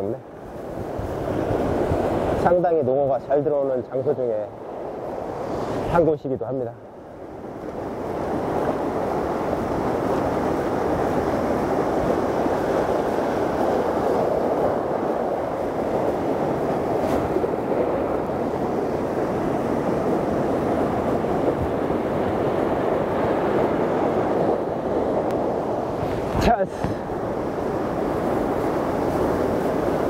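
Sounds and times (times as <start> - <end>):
surf breaking over rocks: 7.6 - 30.0.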